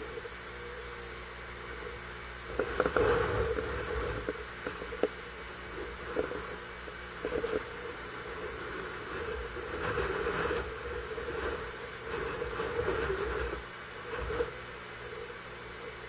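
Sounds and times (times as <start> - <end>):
strong wind buffeting microphone: 2.5 - 14.6.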